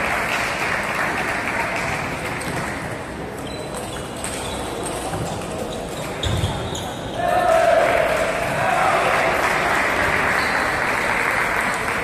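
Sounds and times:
audience applause: 0.0s - 2.2s, 7.8s - 12.0s.

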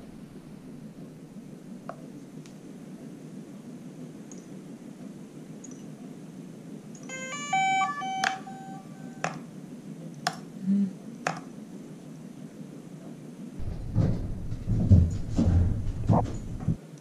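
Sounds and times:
electronic startup tones: 7.1s - 9.3s.

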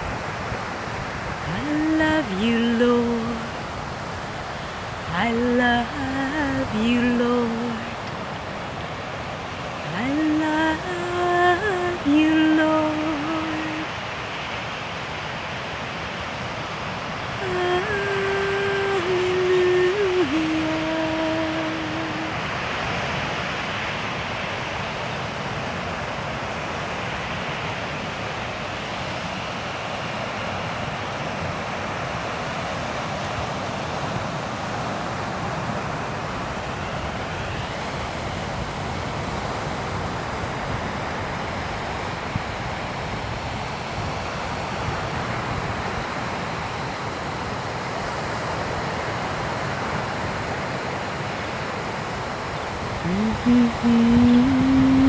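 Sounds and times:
ocean surf breaking: 0.0s - 55.0s
wind rumbling on microphone: 30.0s - 55.0s.

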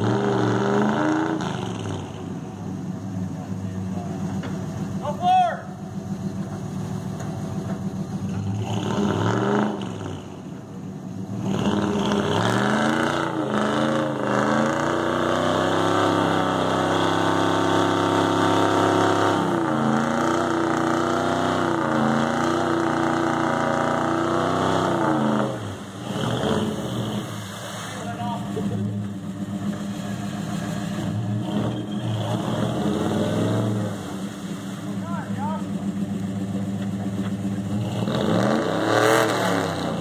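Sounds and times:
truck engine revving: 0.0s - 40.0s.

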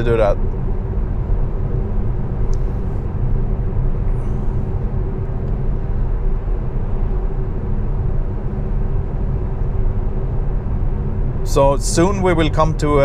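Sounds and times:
road and tyre noise in car: 0.0s - 13.0s.

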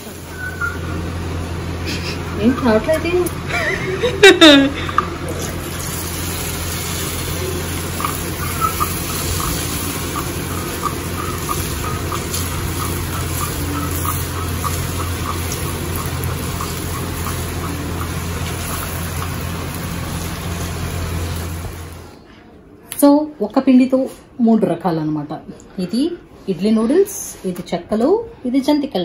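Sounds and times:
steady low hum: 0.0s - 22.4s
batter deep-frying in oil: 5.2s - 22.1s.

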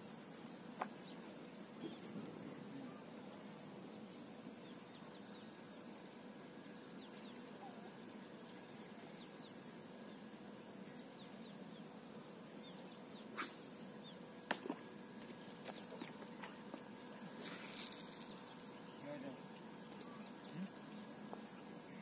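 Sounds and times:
faint outdoor background: 0.0s - 22.0s
small birds chirping: 0.0s - 22.0s.

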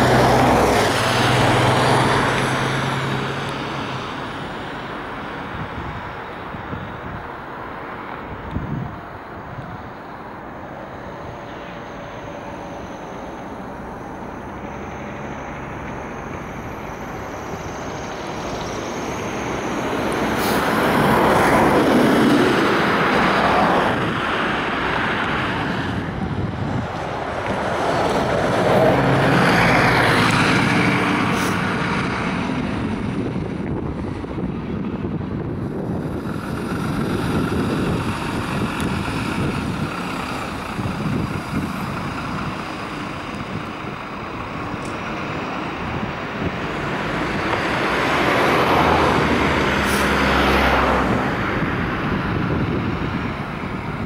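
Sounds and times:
traffic noise: 0.0s - 54.0s
vehicles passing by: 0.0s - 54.0s
wind on microphone: 5.2s - 10.0s, 16.4s - 54.0s.

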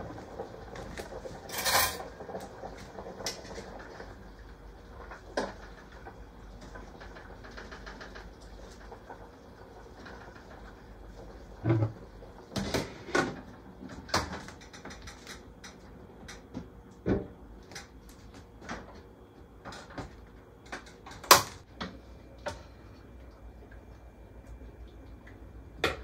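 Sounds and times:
pots and dishes clinking: 1.4s - 2.2s.

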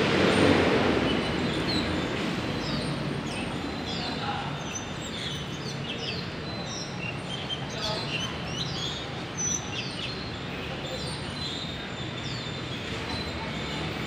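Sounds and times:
vehicle passing rumble: 0.0s - 4.2s
small birds chirping: 1.0s - 14.0s.

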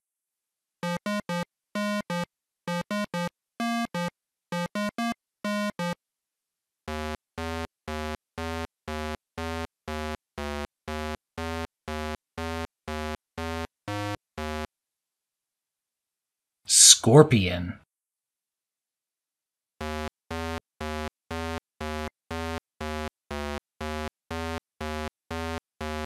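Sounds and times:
chiptune synthesizer beeps: 2.0s - 6.0s.

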